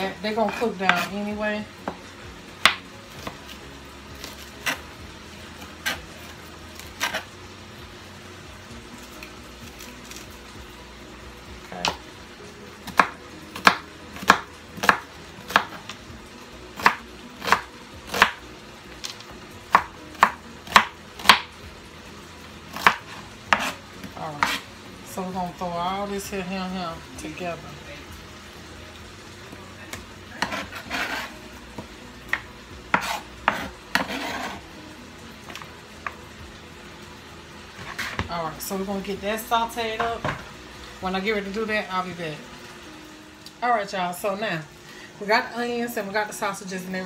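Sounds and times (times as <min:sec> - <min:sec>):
knife chopping on plastic board: 0:32.3 - 0:34.6.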